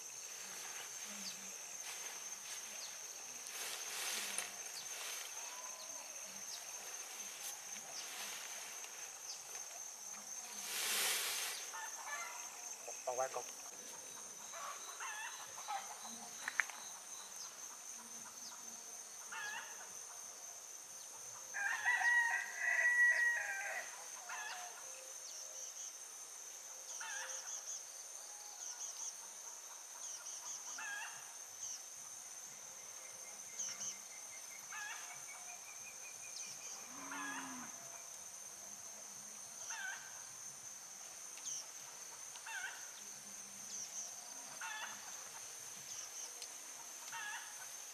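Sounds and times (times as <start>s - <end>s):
high insect drone: 0.0s - 47.9s
rooster crowing: 21.6s - 23.9s.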